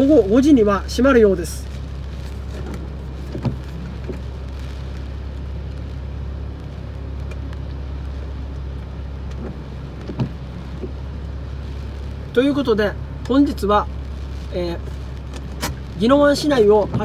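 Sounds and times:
wind against car: 0.0s - 12.4s
heavy rain on car: 0.0s - 17.0s
low car cabin hum: 0.0s - 17.0s.

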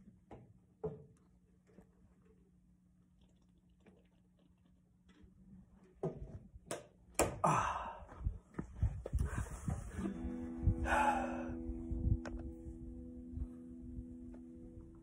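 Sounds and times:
guitar rubbing: 9.4s - 15.0s.

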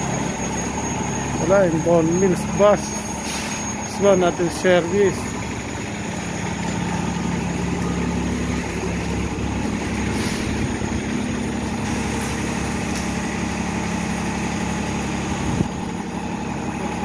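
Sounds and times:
bus engine idling: 0.0s - 17.0s.

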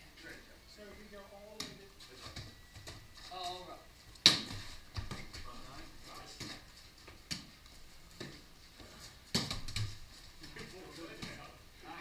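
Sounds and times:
hand slapping a ball: 4.2s - 5.4s, 6.4s - 7.6s, 9.3s - 11.4s.

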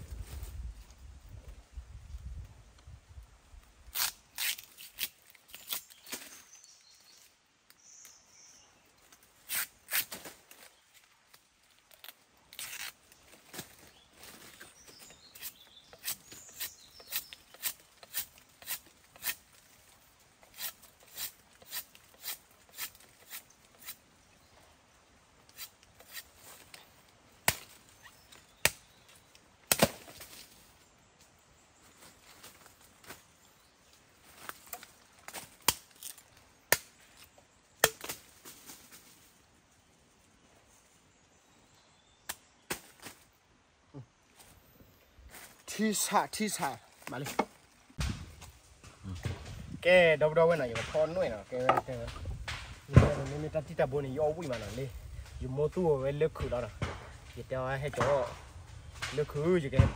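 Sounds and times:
machete chopping bamboo: 15.0s - 19.4s, 20.4s - 24.0s, 25.5s - 26.3s, 27.4s - 27.8s, 28.5s - 28.9s, 29.7s - 30.4s, 34.7s - 37.0s, 37.8s - 38.3s, 50.5s - 53.7s, 57.8s - 58.4s.

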